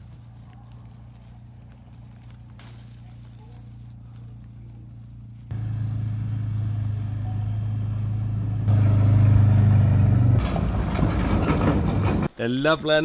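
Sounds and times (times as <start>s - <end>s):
quad bike engine running: 5.5s - 10.5s.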